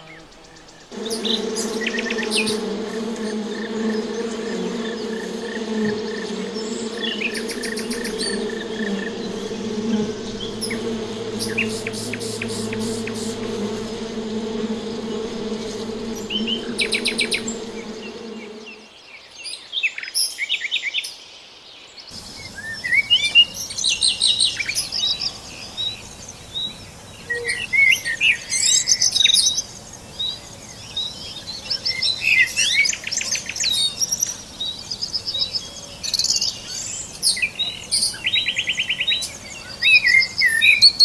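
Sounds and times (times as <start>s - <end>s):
birds chirping: 0.8s - 18.8s
honeybees buzzing: 0.9s - 18.9s
running water hiss: 0.9s - 18.9s.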